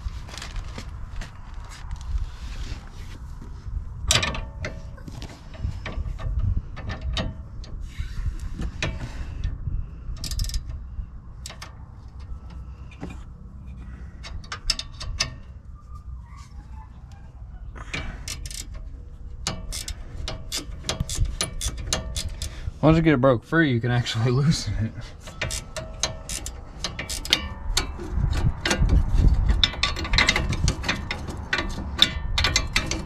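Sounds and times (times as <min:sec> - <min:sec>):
wrench ratcheting clicks: 0:10.2 - 0:10.8, 0:18.0 - 0:18.8, 0:19.4 - 0:22.5, 0:25.3 - 0:28.0
wrenches clicking on a nut: 0:10.2 - 0:10.8, 0:14.2 - 0:15.4, 0:17.9 - 0:22.6, 0:25.2 - 0:33.0.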